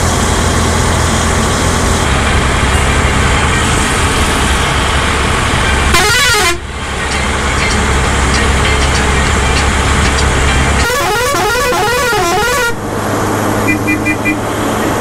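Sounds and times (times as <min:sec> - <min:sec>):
bus engine and road noise: 0:00.0 - 0:15.0
wavering horn blast: 0:05.7 - 0:12.9, 0:13.6 - 0:14.6.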